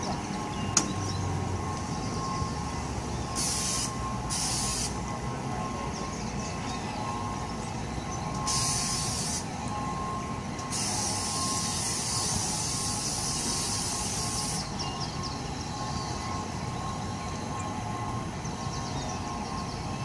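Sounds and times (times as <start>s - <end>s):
amusement ride mechanical rumble: 0.0s - 20.0s.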